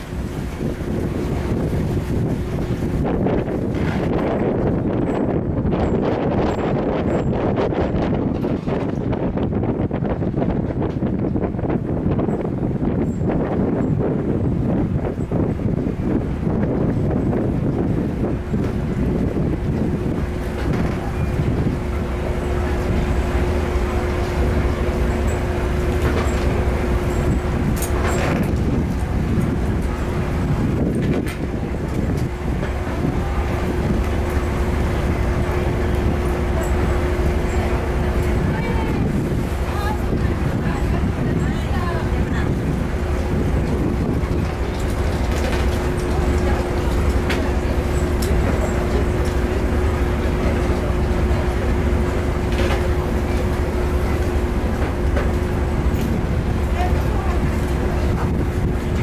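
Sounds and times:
ferry engine idling: 14.6s - 59.0s.

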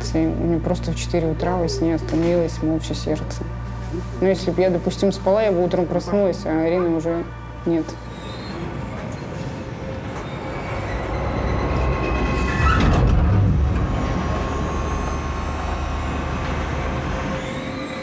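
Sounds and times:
rail vehicle rumbling: 0.0s - 18.0s.

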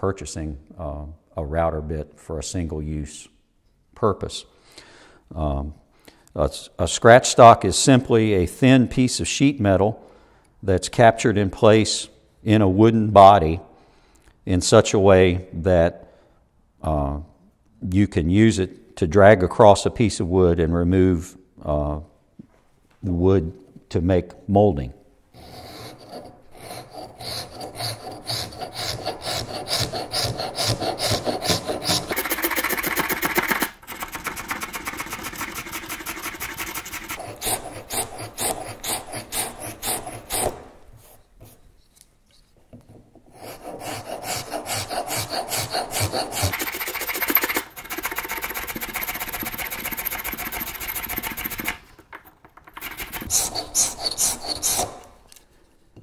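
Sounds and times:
blade scraping wood: 25.4s - 41.6s, 43.3s - 51.8s, 52.6s - 55.2s.

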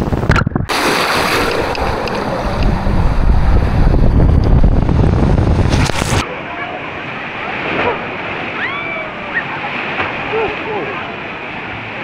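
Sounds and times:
wind buffeting the microphone: 0.0s - 0.8s, 1.4s - 6.2s
deep rumble: 0.0s - 6.2s
rushing splashing water: 0.7s - 12.0s.

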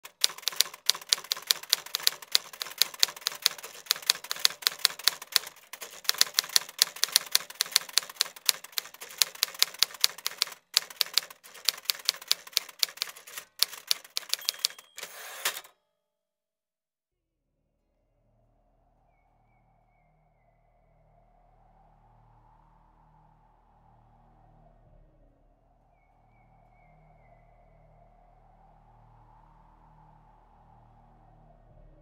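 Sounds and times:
rapid sharp clicks: 0.0s - 15.7s
brief steady rasp: 1.9s - 15.7s.

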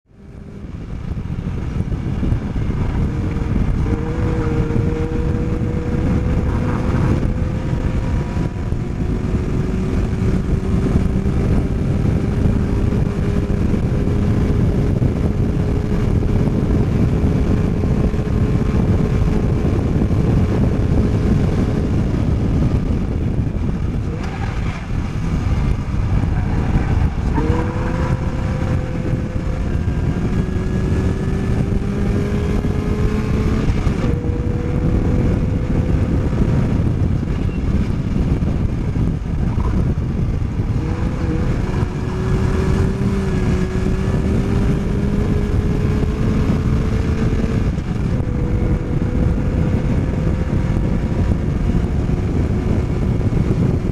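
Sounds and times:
race car engine at high revs: 0.0s - 53.9s
rush of wind: 0.0s - 53.9s.

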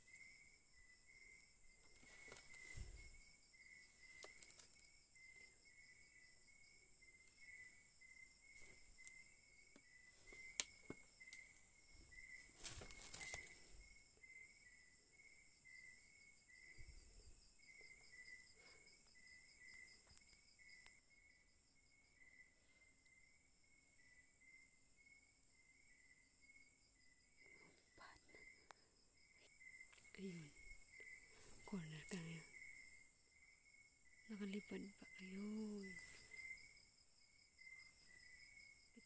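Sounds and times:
crickets chirping: 0.0s - 39.0s
handling rustle: 1.8s - 3.2s, 12.3s - 13.8s.

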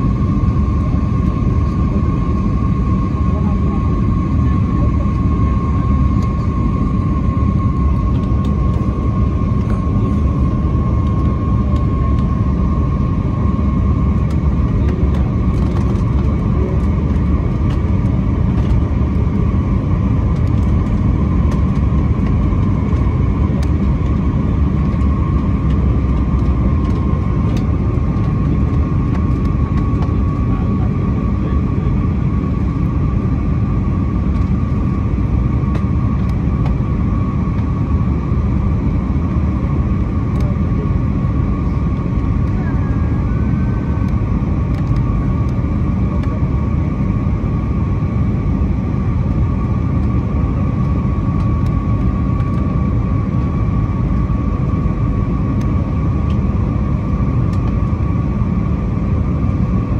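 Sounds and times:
jet engines and airflow rumble: 0.0s - 59.9s.

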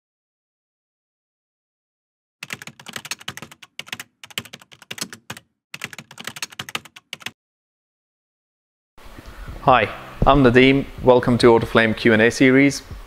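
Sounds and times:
rapid typing on keyboard: 2.4s - 7.4s.

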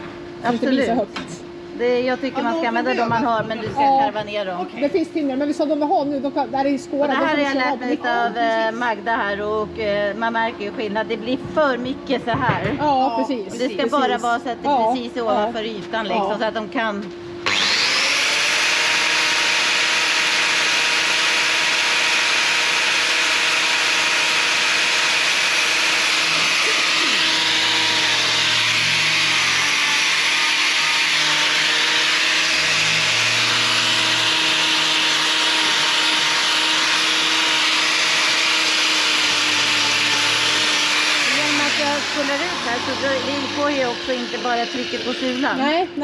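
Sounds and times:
angle grinder running: 13.2s - 46.0s.

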